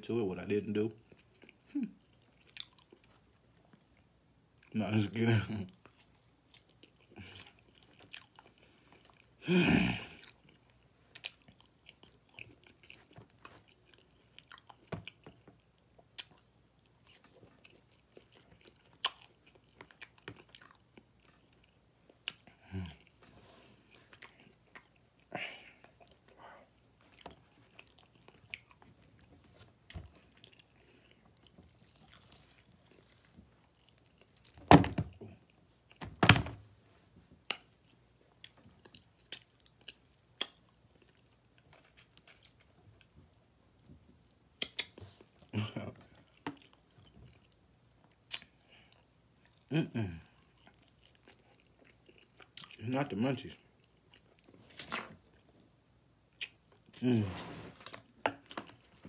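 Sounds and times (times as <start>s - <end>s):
chewing and biting food: 1.0s - 4.7s, 5.7s - 9.4s, 10.1s - 23.2s, 23.8s - 36.0s, 37.4s - 52.8s, 53.5s - 55.6s
wet mouth clicks: 44.6s - 45.0s.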